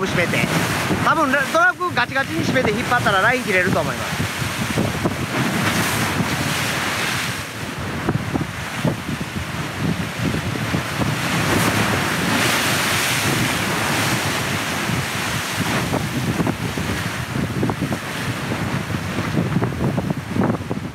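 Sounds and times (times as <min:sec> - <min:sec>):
waves breaking against seawall: 0:00.0 - 0:20.9
wind buffeting microphone: 0:00.0 - 0:20.9.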